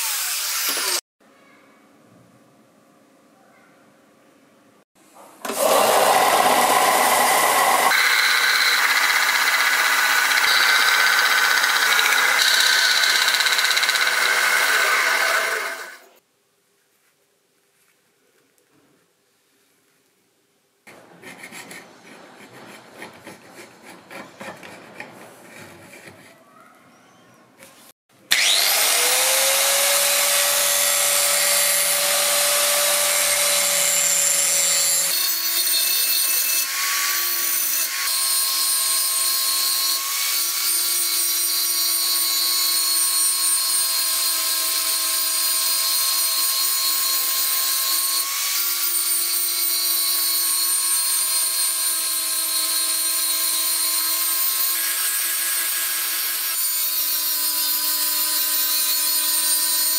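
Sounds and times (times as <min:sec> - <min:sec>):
electric grinder whining: 0:05.4 - 0:16.2, 0:28.3 - 0:59.9.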